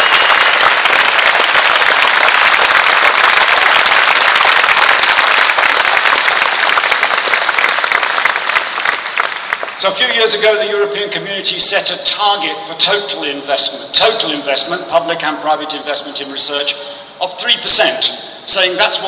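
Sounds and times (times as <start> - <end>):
crowd applauding: 0.0 - 9.9.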